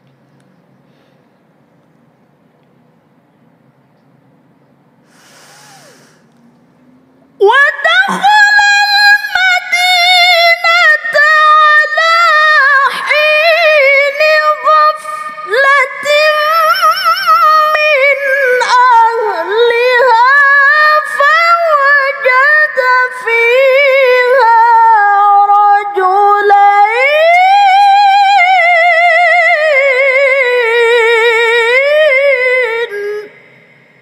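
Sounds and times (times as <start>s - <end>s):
woman reciting melodically: 7.4s - 33.8s.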